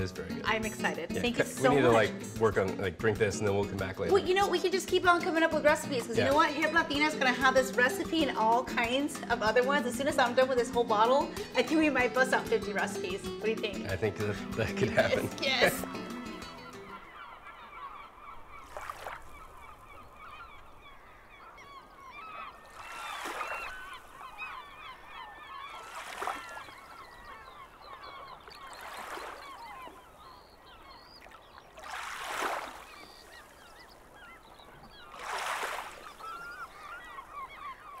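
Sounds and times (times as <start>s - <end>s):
gulls calling: 0.0s - 38.0s
waves washing in: 22.6s - 24.5s, 31.7s - 34.3s, 34.9s - 36.6s.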